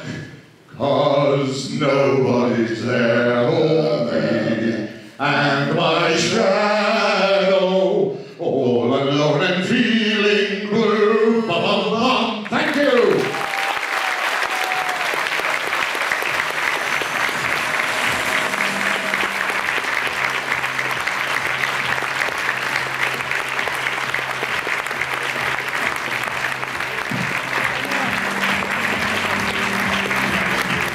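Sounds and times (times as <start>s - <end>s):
audience applauding: 12.6s - 30.9s
music: 15.6s - 30.9s.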